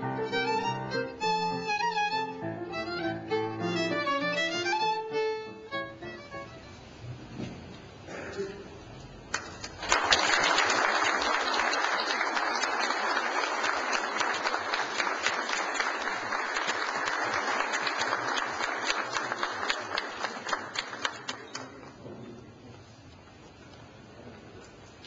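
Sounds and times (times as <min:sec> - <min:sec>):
audience applauding: 0:09.3 - 0:22.0.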